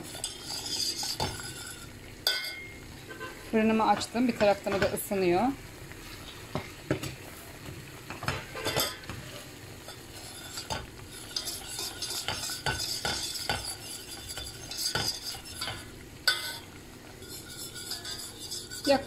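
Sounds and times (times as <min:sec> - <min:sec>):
whisk scraping a metal pot: 0:00.0 - 0:02.6, 0:08.6 - 0:19.0
whisk knocking on pot: 0:10.5 - 0:16.4.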